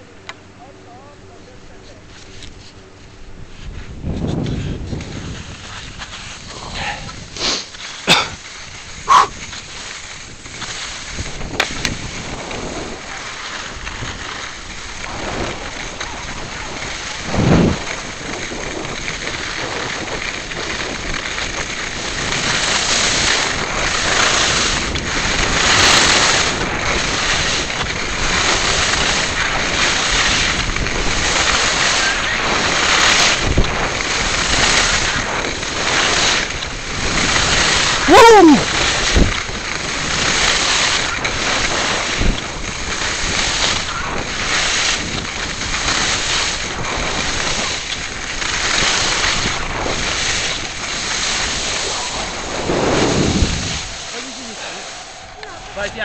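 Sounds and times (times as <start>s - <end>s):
skis scraping over snow: 0.9s - 56.0s
wind on microphone: 3.2s - 56.0s.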